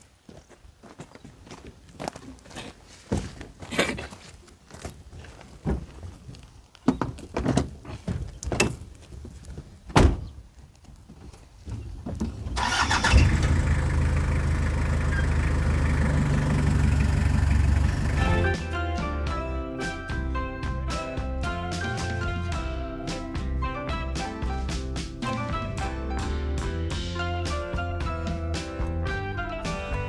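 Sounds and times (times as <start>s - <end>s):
truck engine starting and running: 12.2s - 18.9s.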